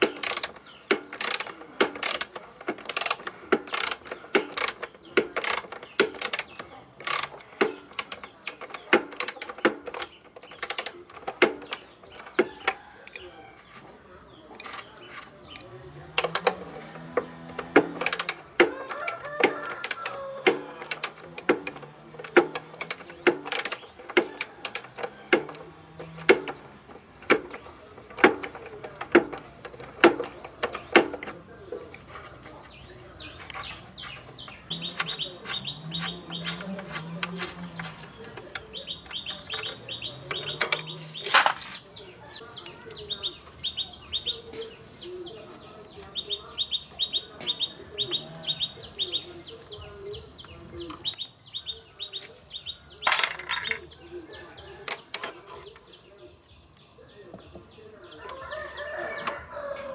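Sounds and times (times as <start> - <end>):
ratchet wrench clicking: 0.0 - 12.3, 17.8 - 25.6
sharp metal clicks: 0.0 - 13.3, 14.5 - 51.4.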